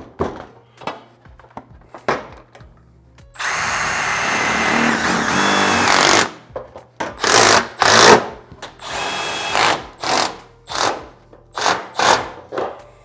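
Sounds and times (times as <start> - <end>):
cordless driver running: 3.4 - 6.2.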